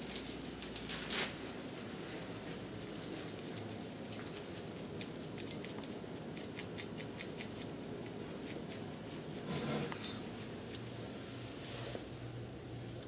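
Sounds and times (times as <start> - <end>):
puppy rustling in crate: 0.0 - 3.2.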